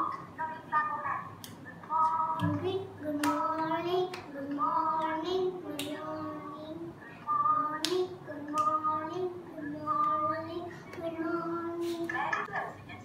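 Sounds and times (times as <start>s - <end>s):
girl singing: 1.8s - 12.4s
hand claps: 3.2s - 4.3s, 5.7s - 6.0s, 7.8s - 8.8s.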